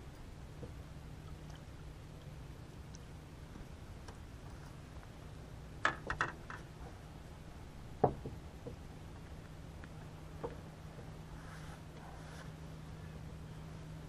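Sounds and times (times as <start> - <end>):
clicks and knocks on boat deck: 5.8 - 6.7, 8.0 - 8.8, 10.4 - 10.6.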